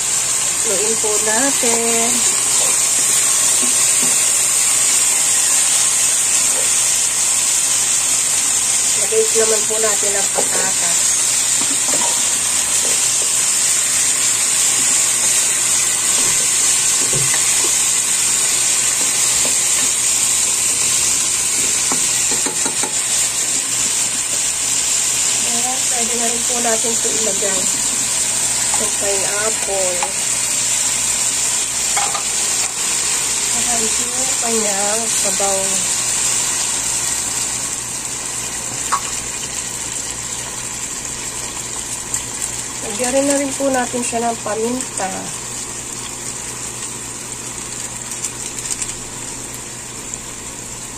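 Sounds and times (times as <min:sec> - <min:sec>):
food sizzling in hot oil: 0:00.0 - 0:50.9
juice pouring into a pan: 0:45.4 - 0:50.9.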